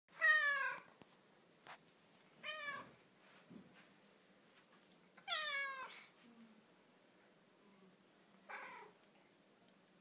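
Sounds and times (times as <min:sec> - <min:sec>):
cat meowing: 0:00.2 - 0:00.9, 0:02.4 - 0:03.0, 0:05.2 - 0:06.1, 0:08.5 - 0:09.0.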